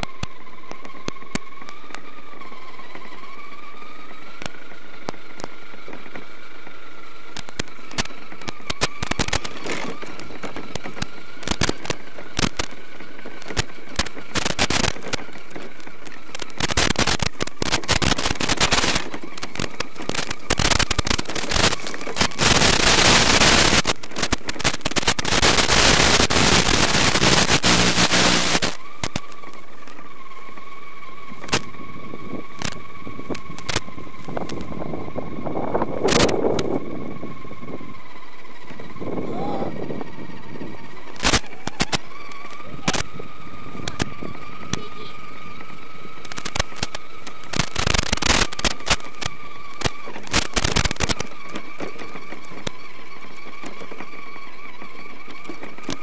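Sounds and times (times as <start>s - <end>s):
clicks: 0.0s - 2.1s, 7.3s - 30.0s, 41.0s - 52.8s
electric motor whine: 0.0s - 56.0s
loud crackling static: 0.0s - 56.0s.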